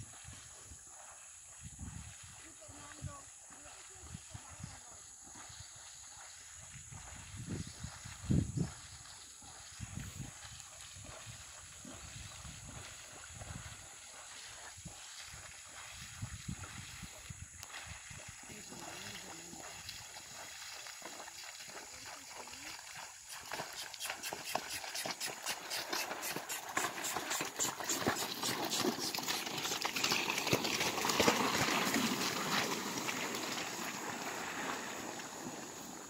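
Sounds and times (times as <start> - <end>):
canoe dragged through grass: 22.7 - 36.0.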